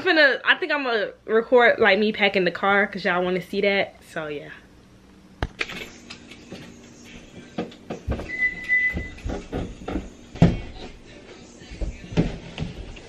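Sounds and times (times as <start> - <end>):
thumps on carpeted stairs: 7.6 - 10.8.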